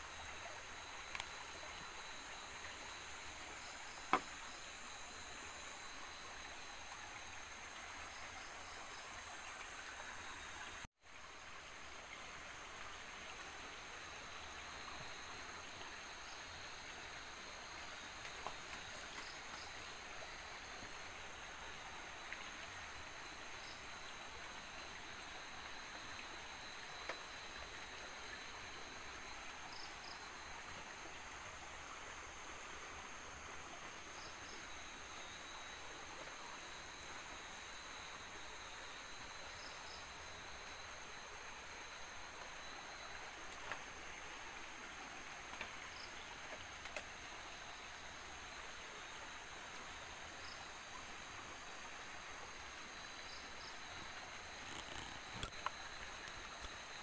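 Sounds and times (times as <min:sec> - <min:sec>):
insect double chirp: 0:00.0 - 0:10.8, 0:14.3 - 0:30.7, 0:33.8 - 0:44.6, 0:52.7 - 0:57.0
faint hiss: 0:00.0 - 0:57.0
insects trilling: 0:00.0 - 0:57.0.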